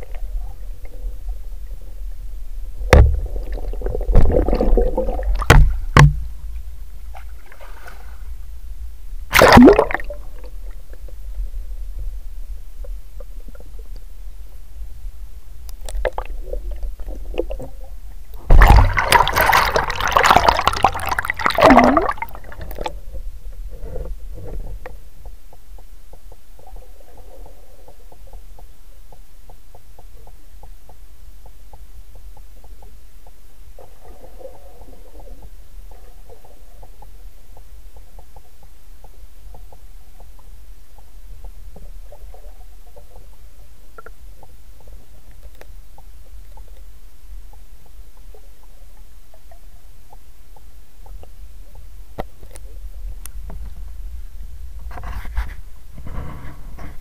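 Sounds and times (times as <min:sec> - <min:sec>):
muffled underwater rumble: 0:00.0 - 0:57.0
churning water splash: 0:09.3 - 0:10.2, 0:18.5 - 0:22.8.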